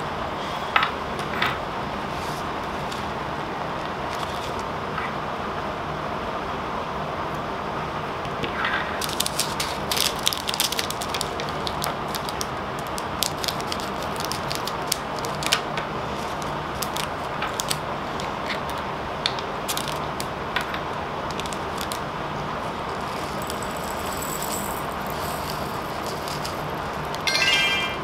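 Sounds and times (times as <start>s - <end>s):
low background hum: 0.0s - 28.0s
plastic jars clicking and rattling: 23.0s - 27.2s.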